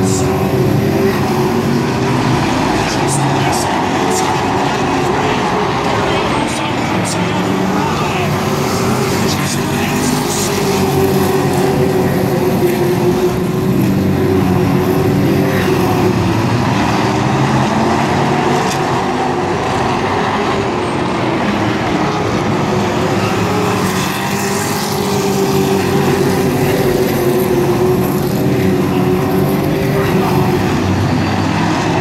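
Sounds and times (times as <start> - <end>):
race truck engines droning: 0.0 - 32.0.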